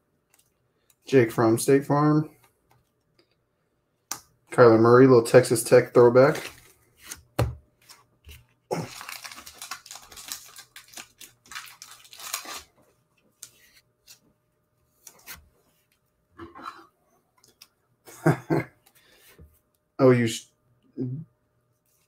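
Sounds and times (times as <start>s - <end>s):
cards rustling: 6.2s - 7.2s, 7.8s - 14.3s.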